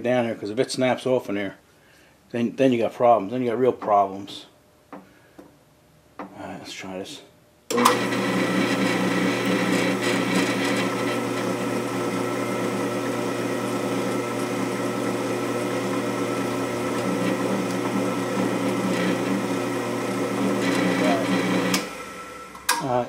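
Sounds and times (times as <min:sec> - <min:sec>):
drill press drilling metal: 0:07.7 - 0:11.6, 0:16.9 - 0:19.4, 0:20.4 - 0:23.0.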